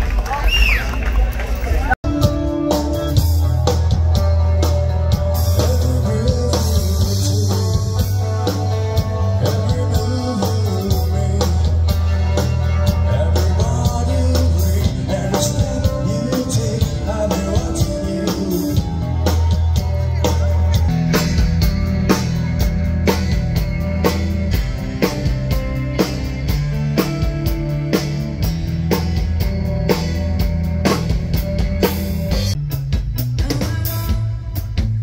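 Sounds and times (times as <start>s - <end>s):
rock music: 0.0s - 35.0s.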